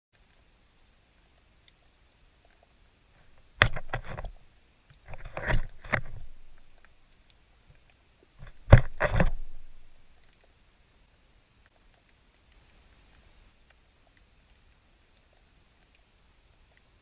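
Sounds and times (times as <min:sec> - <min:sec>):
catfish clicking and knocking underwater: 0:01.6 - 0:10.6.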